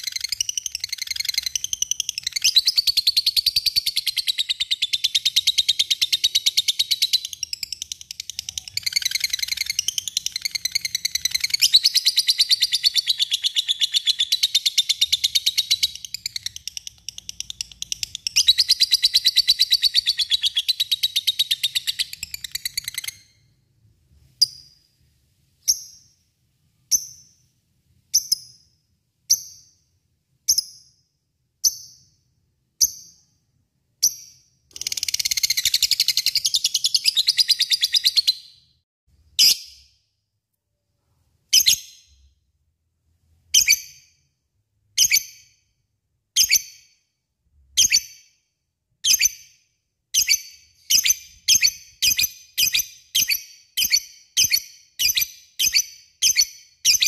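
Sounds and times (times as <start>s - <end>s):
sharp bird chirps: 0.0s - 38.8s, 47.7s - 57.0s.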